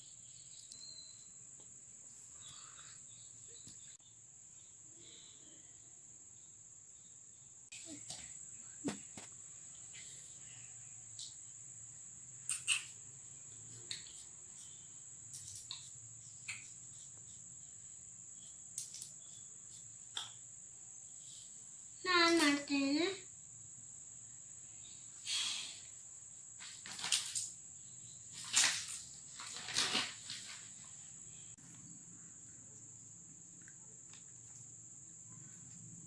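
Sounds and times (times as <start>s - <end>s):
cricket trilling: 0.0s - 36.0s.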